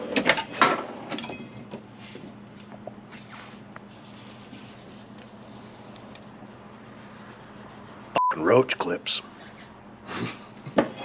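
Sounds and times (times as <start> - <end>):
steady low hum: 0.4 - 11.0.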